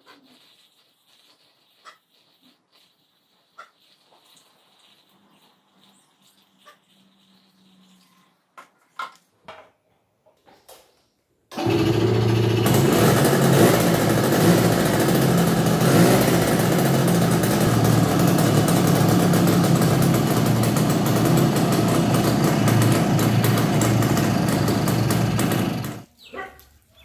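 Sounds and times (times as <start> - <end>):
two-stroke motorcycle engine running: 11.6 - 26.1.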